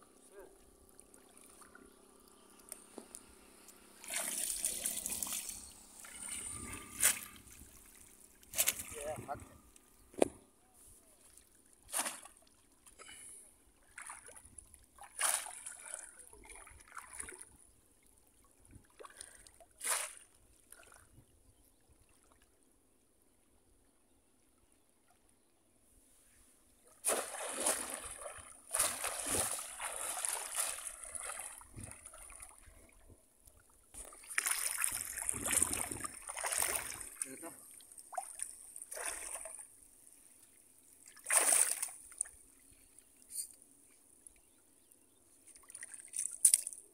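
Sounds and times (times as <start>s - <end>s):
water sloshing: 0.1s - 10.3s, 26.9s - 43.2s
water splashing: 4.0s - 9.5s, 27.0s - 32.8s, 34.0s - 39.7s, 41.0s - 42.4s.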